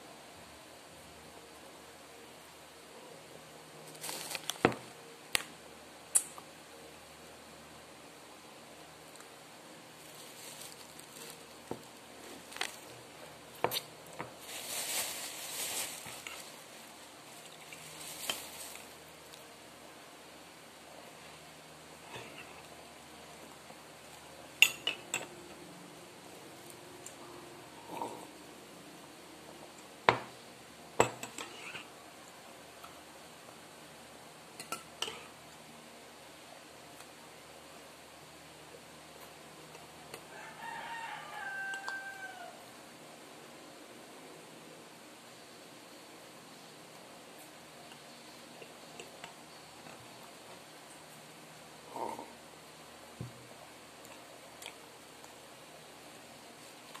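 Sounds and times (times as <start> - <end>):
foil packet crinkling: 3.9 - 4.7, 10.0 - 13.0, 14.4 - 19.1.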